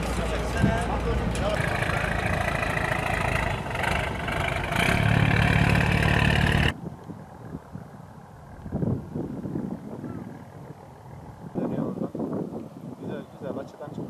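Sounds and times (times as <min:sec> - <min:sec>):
boat engine throbbing: 0:00.0 - 0:06.8.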